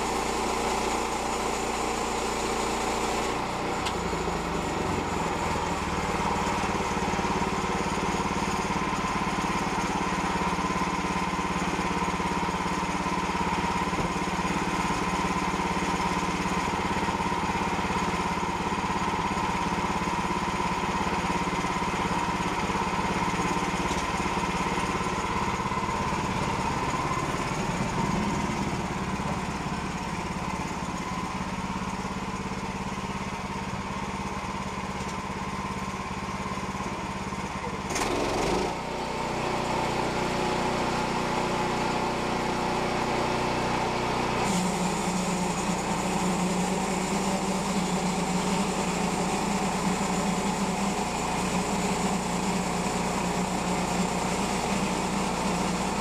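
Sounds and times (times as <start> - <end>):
bandsaw sawmill engine drone: 0.0 - 56.0.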